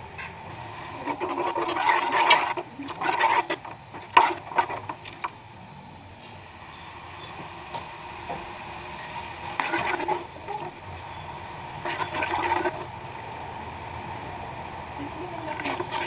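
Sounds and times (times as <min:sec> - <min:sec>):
spoon scraping metal pot: 0:00.9 - 0:05.4, 0:09.5 - 0:10.8, 0:11.8 - 0:12.9, 0:15.5 - 0:16.0.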